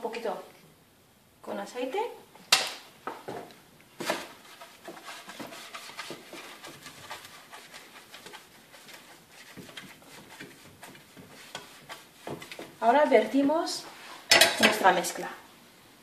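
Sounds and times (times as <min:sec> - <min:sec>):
brush scraping metal baking tin: 0:04.0 - 0:13.4.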